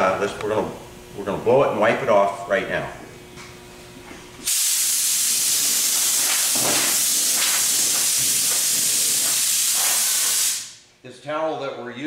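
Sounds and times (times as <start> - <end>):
compressed air blow gun hissing: 4.4 - 10.8.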